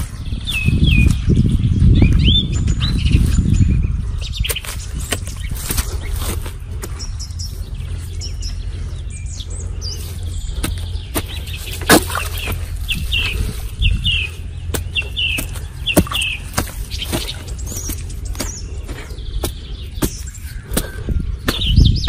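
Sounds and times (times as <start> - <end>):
bird chirping: 0.0 - 22.0
steady low rumble: 0.0 - 22.0
hoe chopping into dry soil: 4.4 - 7.0, 10.6 - 12.6, 14.7 - 22.0.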